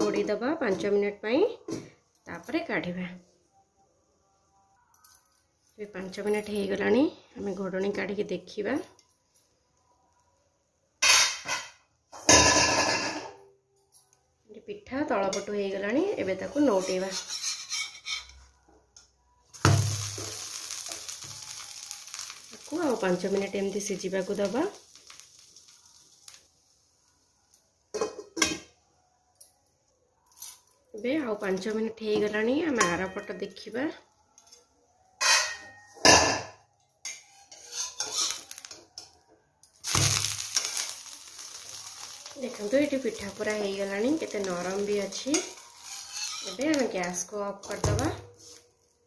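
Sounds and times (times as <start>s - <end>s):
metal spatula scraping: 16.3s - 18.6s, 37.0s - 39.2s, 39.8s - 48.8s
oil sizzling: 19.5s - 28.5s, 37.2s - 49.0s.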